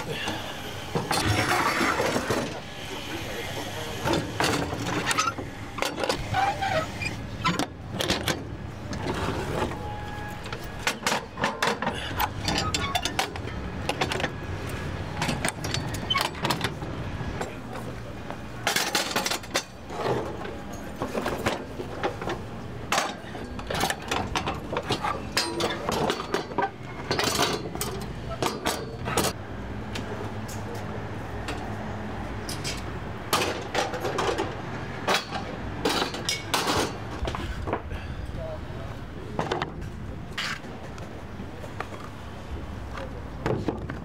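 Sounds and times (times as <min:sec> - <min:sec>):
utensils and dishes clattering: 0:18.6 - 0:29.4, 0:32.4 - 0:37.0.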